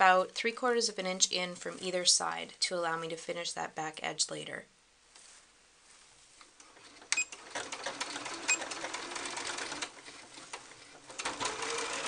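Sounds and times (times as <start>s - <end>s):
sewing machine stitching: 6.7s - 12.0s.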